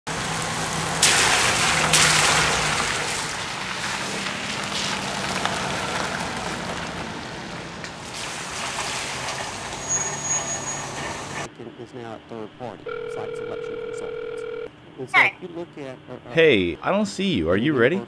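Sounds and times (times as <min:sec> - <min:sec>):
car tyres hissing on wet road: 0:00.1 - 0:11.5.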